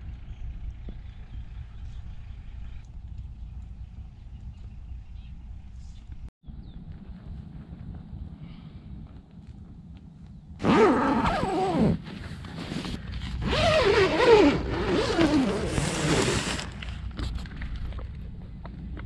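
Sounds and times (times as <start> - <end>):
zipper being pulled: 10.6 - 16.9.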